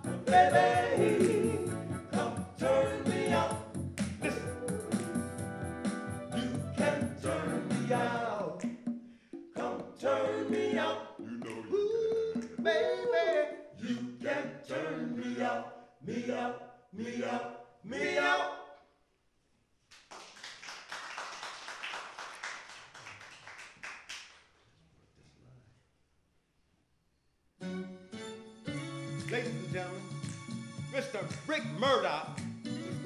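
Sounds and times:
male vocal group singing a cappella: 0.0 - 5.0, 6.3 - 8.8, 9.4 - 18.8
applause: 19.9 - 24.5.

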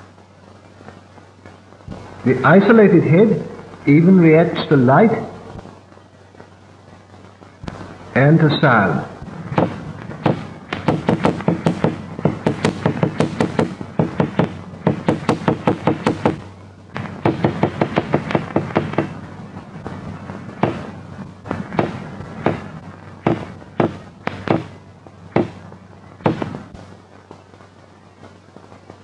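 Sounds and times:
hammer knocking on table: 9.6 - 16.4, 17.2 - 19.1, 20.6 - 20.8, 21.8 - 22.6, 23.3 - 24.7, 25.4 - 25.6, 26.3 - 26.6.

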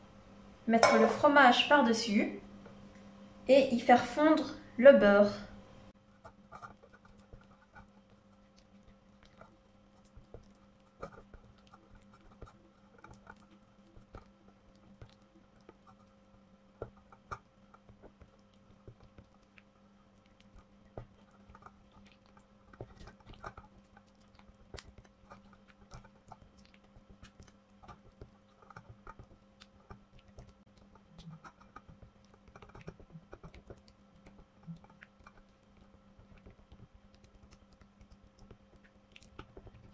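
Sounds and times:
low steady hum: 0.0 - 39.9.

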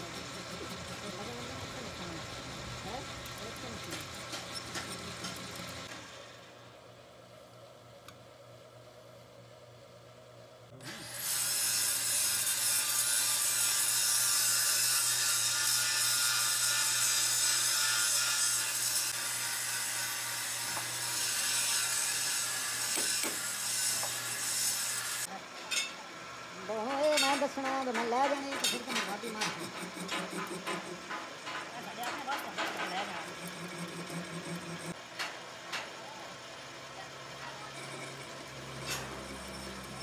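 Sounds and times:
lathe motor humming: 0.0 - 6.0, 27.8 - 35.0
lathe tool scraping metal: 0.0 - 6.0, 10.8 - 25.9, 26.7 - 35.0, 37.5 - 40.0.

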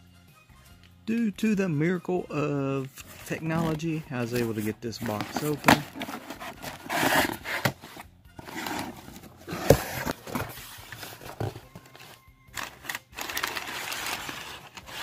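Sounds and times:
cardboard scraping and rustling: 3.0 - 15.0.

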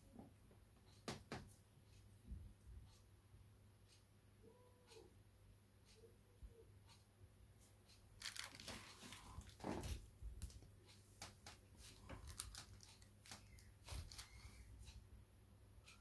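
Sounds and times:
faint rustling and crinkling: 7.6 - 15.0.

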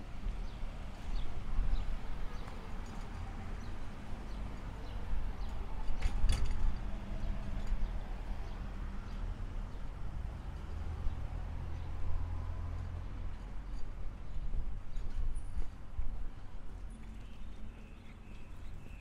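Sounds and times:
low traffic hum: 0.0 - 19.0
footsteps on paved footpath: 0.1 - 6.0.

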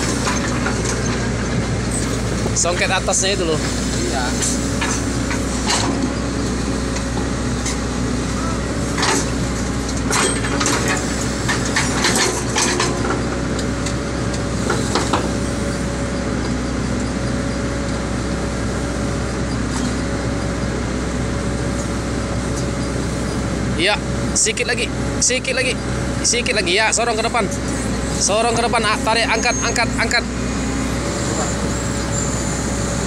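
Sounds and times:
diesel engine running: 0.0 - 33.0
metallic clanks and knocks: 9.0 - 14.0.

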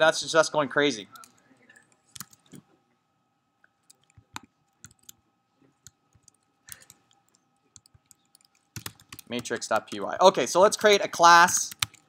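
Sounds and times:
faint electrical hum: 0.0 - 12.0
keyboard and mouse clicks: 1.1 - 2.7, 3.7 - 5.2, 5.8 - 11.0, 11.6 - 12.0.

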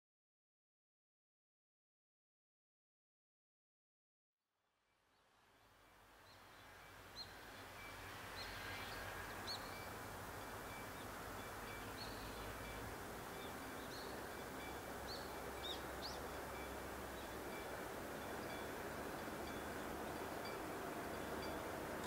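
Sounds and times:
small birds chirping: 8.4 - 17.4.

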